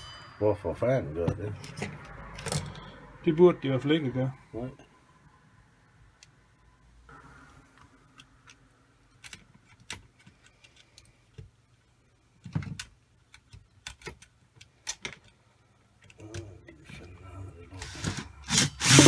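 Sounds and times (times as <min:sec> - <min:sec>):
small clicks and knocks of handling: 0:08.1 - 0:11.8, 0:12.4 - 0:17.0.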